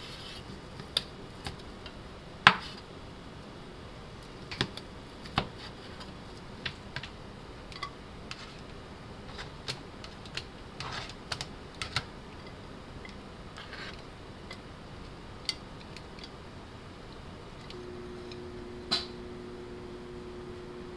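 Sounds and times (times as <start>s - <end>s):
tongs clicking and scraping: 7.7s - 8.7s, 9.3s - 16.4s.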